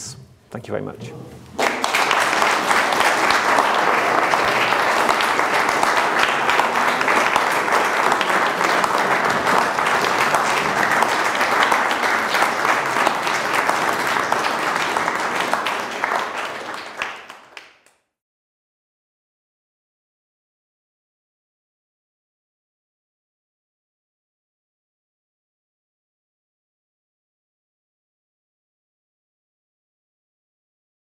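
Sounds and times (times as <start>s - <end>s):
audience applauding: 1.5s - 18.0s.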